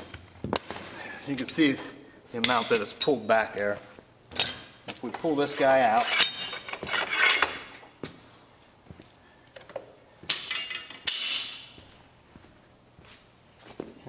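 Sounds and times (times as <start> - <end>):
metal tube scraping and clinking: 5.6 - 7.7.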